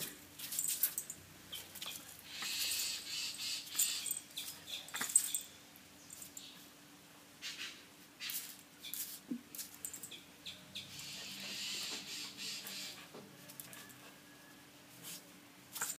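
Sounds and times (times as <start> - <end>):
puppy claws scratching on tiles: 0.4 - 5.4, 15.0 - 15.9.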